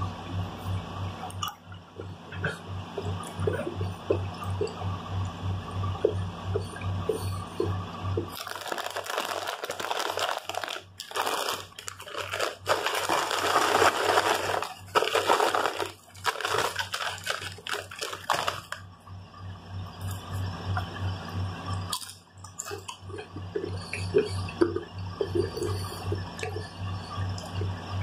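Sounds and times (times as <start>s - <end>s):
plastic chip bag rustling: 8.3s - 18.8s.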